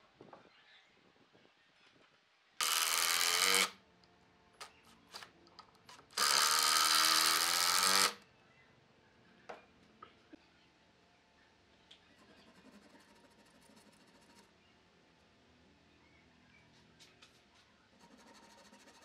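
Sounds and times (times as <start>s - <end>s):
power drill driving screws: 2.6s - 3.8s, 6.1s - 8.2s.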